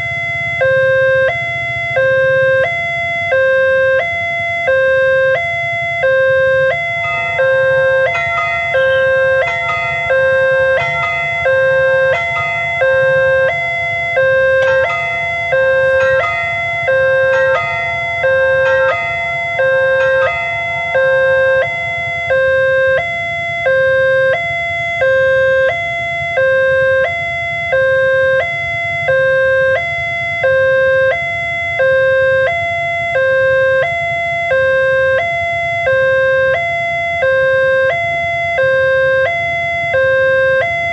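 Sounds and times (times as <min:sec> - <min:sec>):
steady electronic tone: 0:00.0 - 0:28.2
constant low rumble: 0:00.0 - 0:40.9
level crossing alarm two-tone signal: 0:00.0 - 0:40.9.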